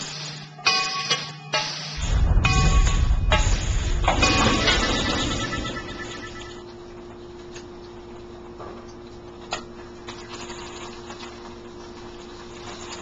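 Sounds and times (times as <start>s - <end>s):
low hum: 2.0s - 8.5s.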